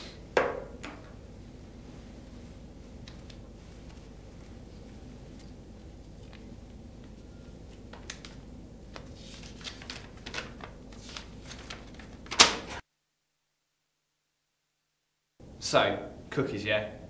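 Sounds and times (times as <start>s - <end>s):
paper crackling and rustling: 3.0s - 12.8s.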